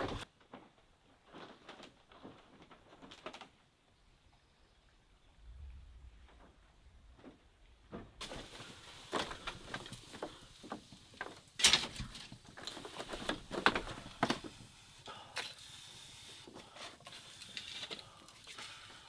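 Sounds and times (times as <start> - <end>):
wood and bamboo knocking: 7.9 - 14.6.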